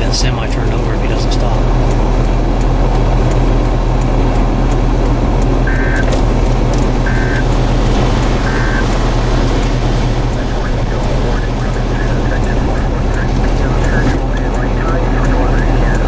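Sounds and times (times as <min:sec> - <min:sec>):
constant low hum: 0:00.0 - 0:16.0
wind and vehicle rumble: 0:00.0 - 0:16.0
short electronic beeps: 0:05.7 - 0:06.1, 0:07.1 - 0:07.5, 0:08.4 - 0:08.9.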